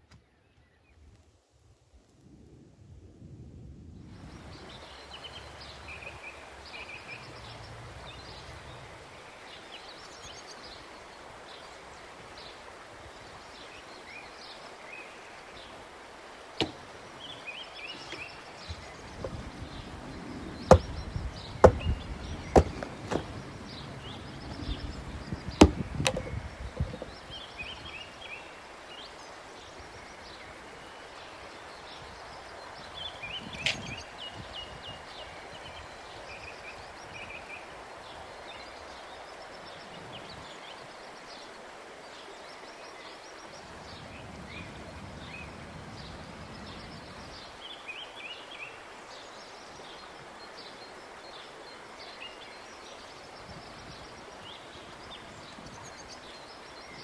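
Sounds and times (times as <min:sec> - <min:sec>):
axe chopping wood: 0:16.6 - 0:16.9, 0:20.7 - 0:21.0, 0:21.6 - 0:21.9, 0:22.6 - 0:23.4, 0:25.6 - 0:26.4.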